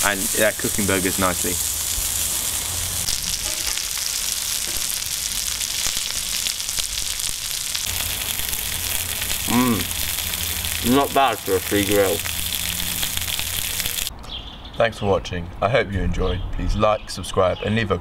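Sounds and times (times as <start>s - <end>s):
burgers sizzling on griddle: 0.0s - 14.1s.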